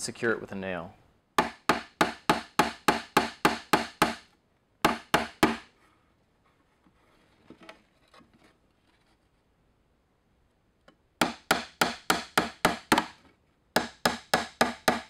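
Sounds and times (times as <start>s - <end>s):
hammer striking nail: 1.4s - 5.7s, 11.2s - 13.2s, 13.8s - 15.0s.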